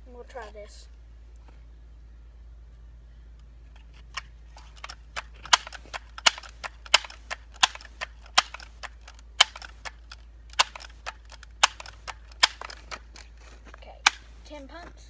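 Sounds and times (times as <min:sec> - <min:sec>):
air rifle pump clacking: 0:04.0 - 0:13.3.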